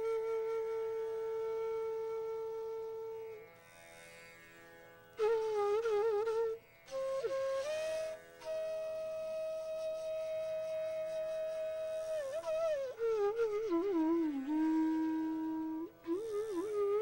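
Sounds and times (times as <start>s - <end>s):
bamboo flute melody: 0.0s - 3.4s, 5.2s - 17.0s
tanpura drone: 0.0s - 17.0s.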